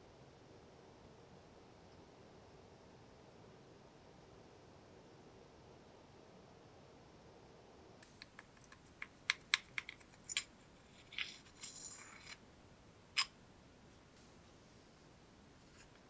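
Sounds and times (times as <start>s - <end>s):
metal wrench clicking: 8.2s - 12.4s
wrench scraping: 9.0s - 12.4s.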